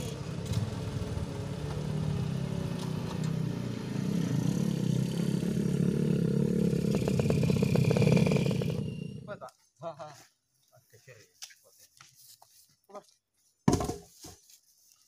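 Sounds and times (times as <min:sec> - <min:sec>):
small motorcycle engine running: 0:00.0 - 0:09.3.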